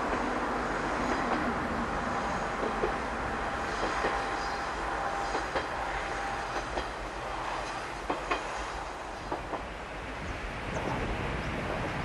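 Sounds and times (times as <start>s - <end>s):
train wheels clicking over rail joints: 0.0s - 1.5s, 2.2s - 9.7s
distant train running noise: 0.0s - 12.0s.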